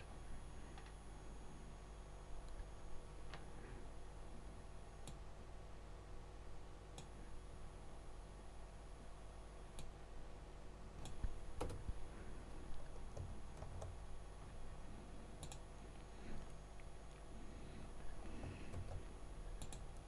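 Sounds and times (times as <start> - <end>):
low steady hum: 0.0 - 20.0
keyboard keystrokes: 11.0 - 11.9
mouse clicks: 15.4 - 15.7.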